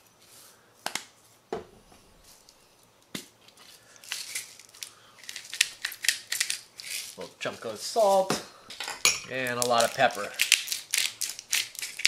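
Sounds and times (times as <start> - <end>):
spice mill grinding: 3.9 - 8.2, 9.3 - 12.0.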